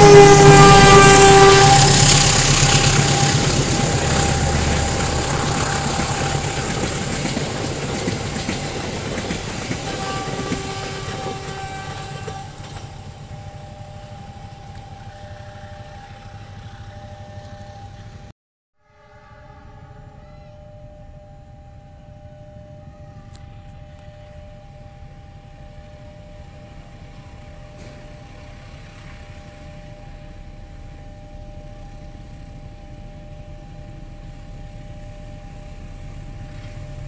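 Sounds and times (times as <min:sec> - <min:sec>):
train carriages rolling: 0:00.0 - 0:18.3
faint steady tones: 0:00.0 - 0:37.0
train horn: 0:00.0 - 0:37.0.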